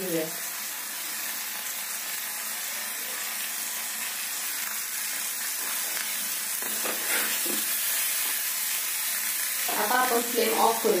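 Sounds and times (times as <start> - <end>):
chicken sizzling in a pan: 0.0 - 11.0
metal spatula scraping: 6.6 - 8.4.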